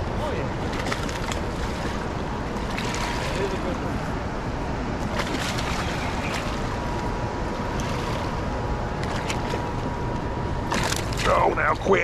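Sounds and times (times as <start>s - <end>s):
fish splashing at water surface: 0.7s - 3.6s, 5.1s - 6.8s, 10.6s - 11.3s.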